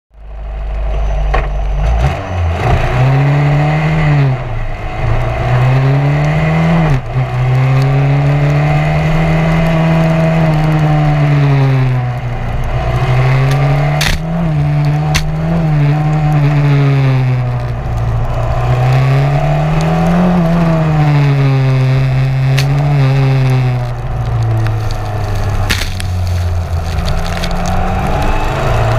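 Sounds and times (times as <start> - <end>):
race car engine revving: 0.6 - 28.9.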